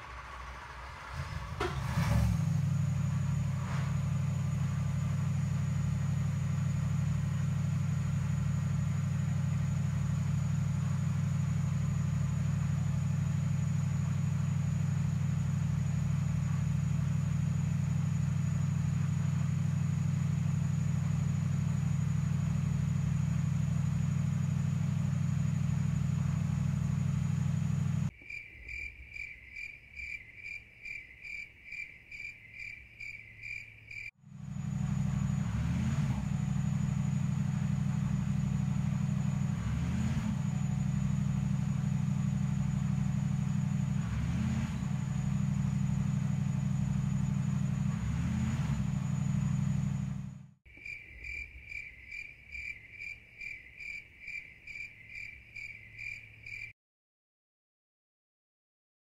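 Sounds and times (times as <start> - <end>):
race car engine idling: 0.0 - 28.1, 34.2 - 48.2, 48.8 - 50.5
engine throttle blips: 0.0 - 28.2, 34.1 - 50.6.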